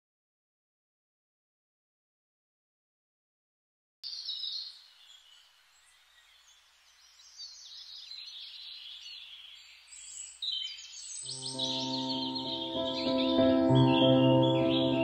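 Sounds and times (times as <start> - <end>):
birds chirping and twittering: 4.0 - 15.0.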